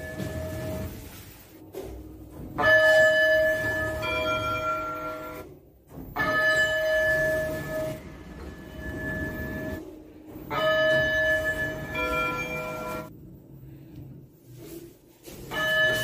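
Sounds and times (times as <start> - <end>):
elevator two-tone chime: 0.0 - 1.0, 6.2 - 9.8, 10.5 - 13.1
single high elevator chime: 6.2 - 9.8.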